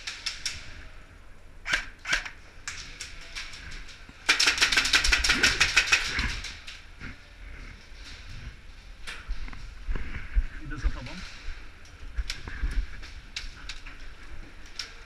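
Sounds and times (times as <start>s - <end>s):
airsoft gun full-auto burst: 4.3s - 6.3s.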